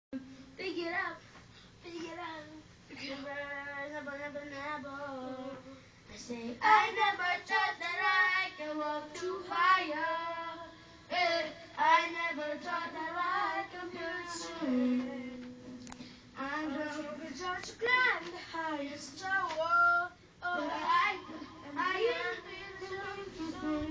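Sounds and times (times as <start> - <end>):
boys singing into microphones: 3.1 - 23.9.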